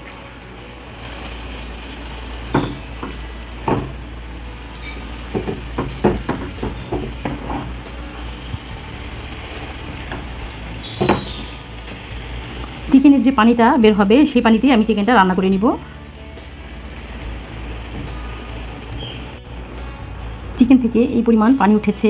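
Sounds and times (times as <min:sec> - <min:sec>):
chicken sizzling in a pan: 0:00.0 - 0:19.4
spatula knocking against pan: 0:02.5 - 0:04.0, 0:05.3 - 0:07.8.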